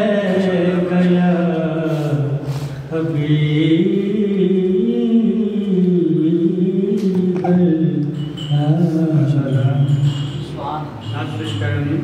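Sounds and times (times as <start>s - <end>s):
man chanting: 0.0s - 10.2s.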